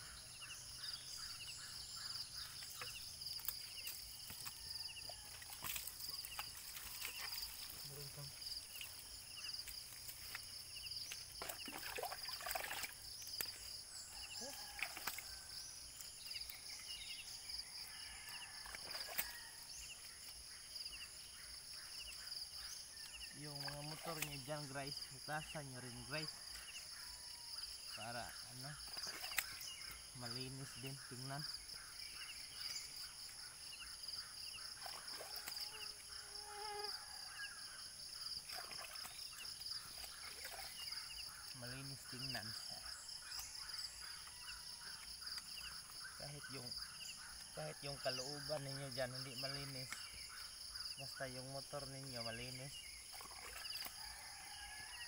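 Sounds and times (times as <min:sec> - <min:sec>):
insects chirping: 0:00.0 - 0:55.0
water splashing and rubbing: 0:02.6 - 0:13.1, 0:38.4 - 0:41.0, 0:53.0 - 0:54.1.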